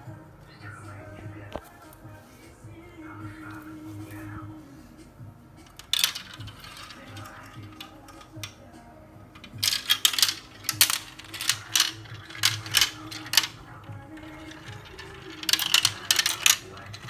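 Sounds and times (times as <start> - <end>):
marbles clattering through marble run: 5.7 - 8.6, 9.4 - 17.0.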